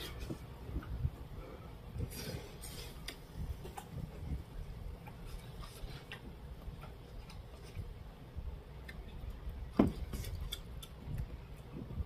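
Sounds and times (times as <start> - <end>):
person chewing: 10.2 - 11.3.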